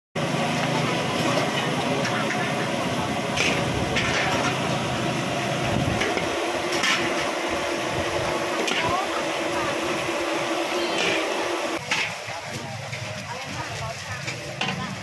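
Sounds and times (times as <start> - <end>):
busy market voices: 0.2 - 15.0
metal spatula scraping a wok: 1.2 - 4.8, 5.9 - 7.4, 10.7 - 13.1.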